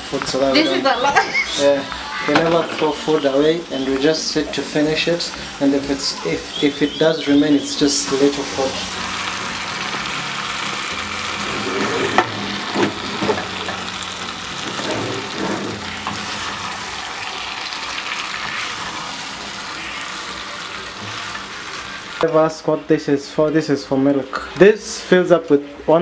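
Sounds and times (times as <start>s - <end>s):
meat sizzling in a frying pan: 0.0s - 22.7s.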